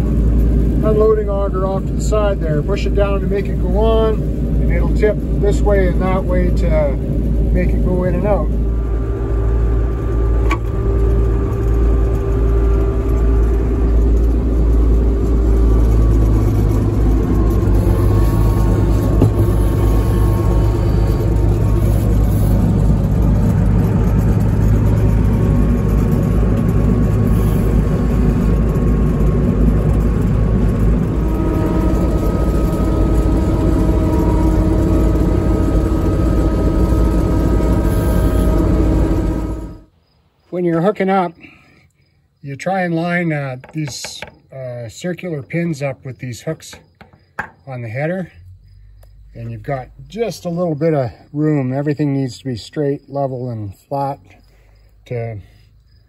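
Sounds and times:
combine engine running: 0:00.0 - 0:40.0
high-pitched whine: 0:00.0 - 0:41.4.

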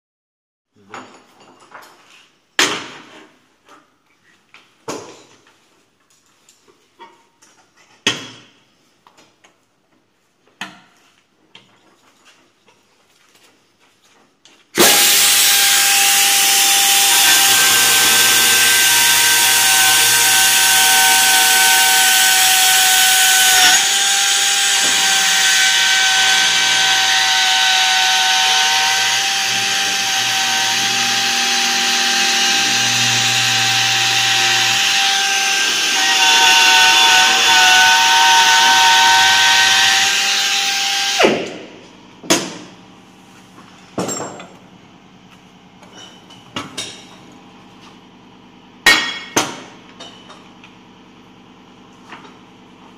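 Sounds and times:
chamfering tool whining on steel: 0:14.8 - 0:41.3.

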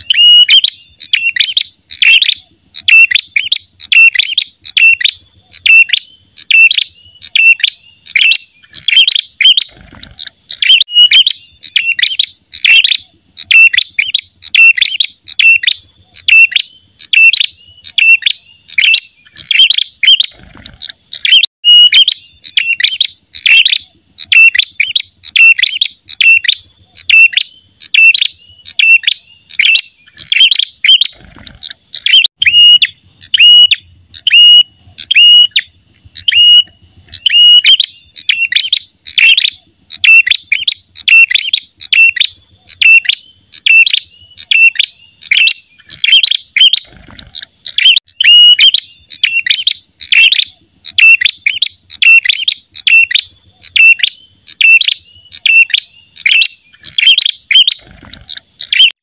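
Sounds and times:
bird sharp chirping call: 0:00.0 - 0:59.0.

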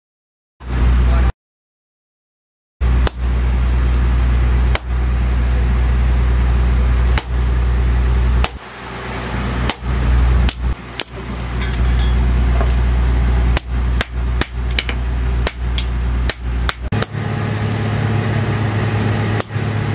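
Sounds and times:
loud steady low hum: 0:00.6 - 0:01.3, 0:02.8 - 0:19.9
sharp metal knocks: 0:10.5 - 0:12.9.

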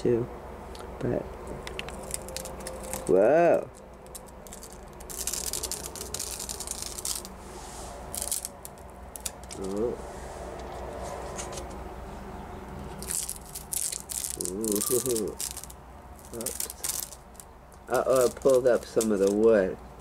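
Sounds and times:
clicks and rustling: 0:01.6 - 0:07.3, 0:13.0 - 0:19.6.

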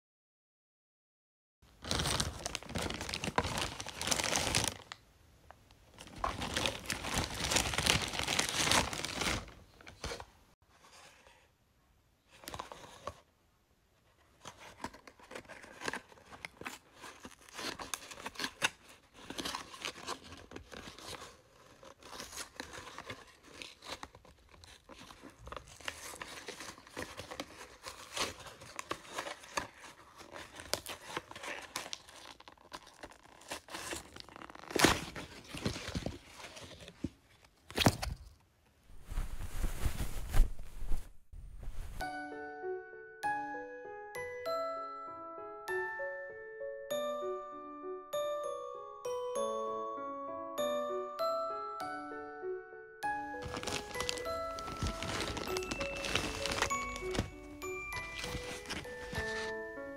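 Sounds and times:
wrapping paper tearing and crumpling: 0:01.7 - 0:05.0, 0:06.0 - 0:10.2, 0:14.6 - 0:37.1, 0:53.4 - 0:59.8.

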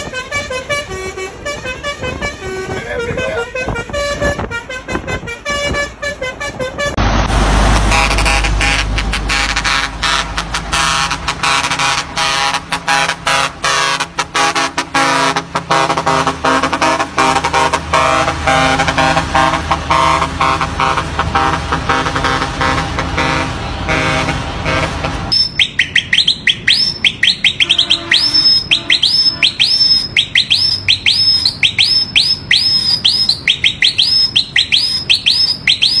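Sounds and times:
musical air horn playing a tune: 0:00.0 - 0:07.0, 0:07.8 - 0:25.4, 0:27.6 - 0:29.9
electronic bird-call horn chirping: 0:07.9 - 0:36.0.

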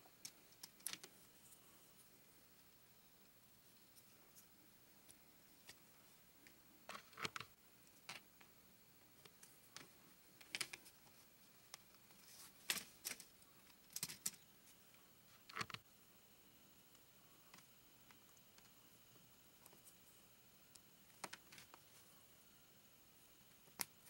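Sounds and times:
plastic pieces clicking and clattering: 0:00.6 - 0:01.1, 0:12.6 - 0:14.4.

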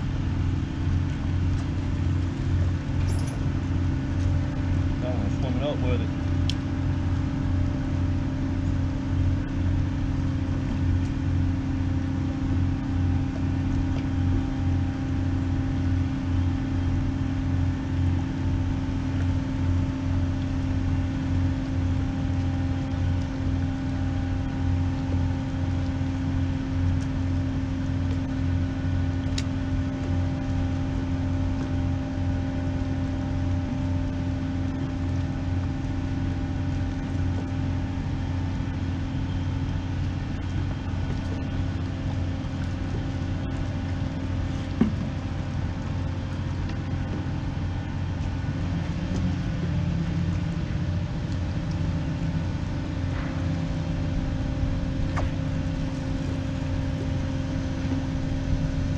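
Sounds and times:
ship engine droning: 0:00.0 - 0:58.9.

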